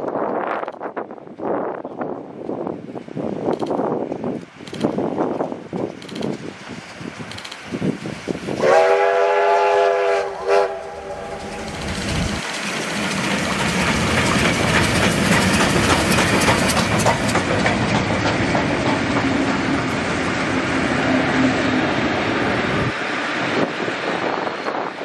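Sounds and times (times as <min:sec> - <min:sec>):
train passing: 0:00.1 - 0:25.0
wheels clicking over rail joints: 0:03.4 - 0:08.5, 0:10.8 - 0:20.3
steam whistle: 0:08.6 - 0:11.5.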